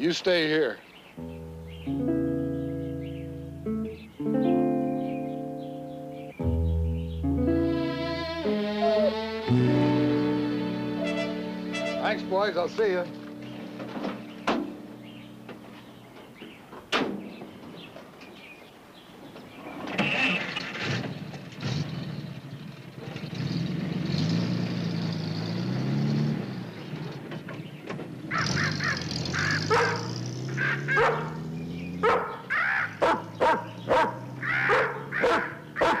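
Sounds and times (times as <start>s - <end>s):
truck engine revving: 6.5s - 15.6s, 20.1s - 36.0s
dogs barking: 28.3s - 31.4s, 32.0s - 36.0s.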